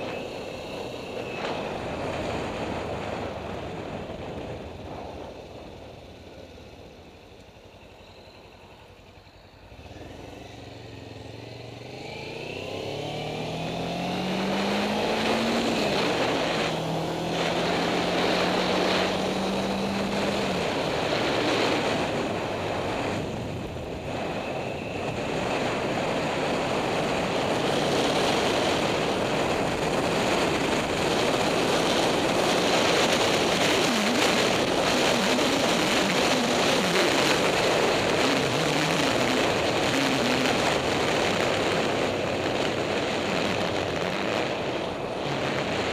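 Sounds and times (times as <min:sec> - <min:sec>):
wind rushing over microphone: 0:00.0 - 0:07.2, 0:11.4 - 0:45.9
motorcycle engine accelerating: 0:00.0 - 0:45.9.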